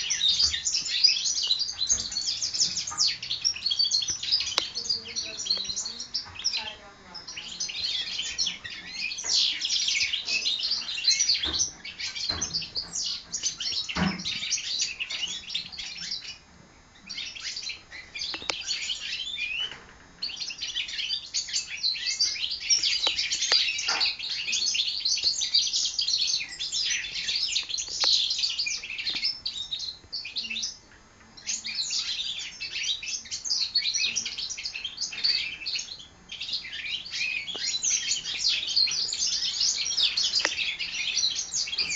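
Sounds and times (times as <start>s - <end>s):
finches chirping and trilling: 0.0s - 41.9s.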